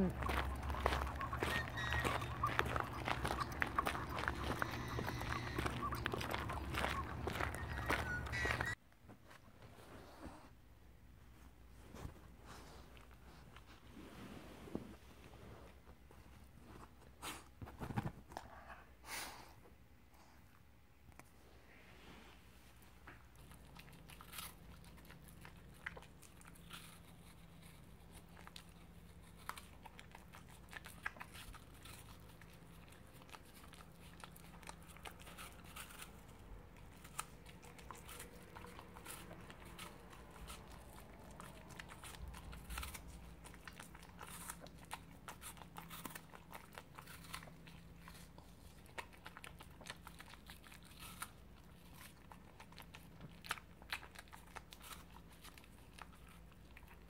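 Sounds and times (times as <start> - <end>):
dog crunching apple: 0.0 - 8.8, 23.3 - 57.0.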